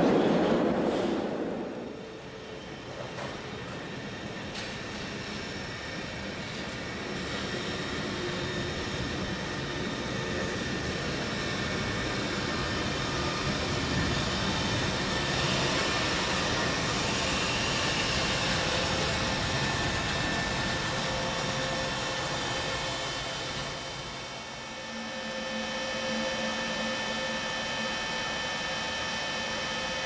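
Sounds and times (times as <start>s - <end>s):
train wheels rolling on rails: 0.0s - 30.0s
faint whining tones: 7.2s - 30.0s.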